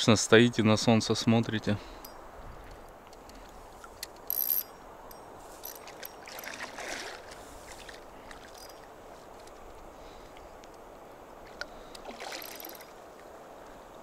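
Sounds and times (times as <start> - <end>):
water splashing and sloshing: 5.2 - 10.5, 11.3 - 13.4.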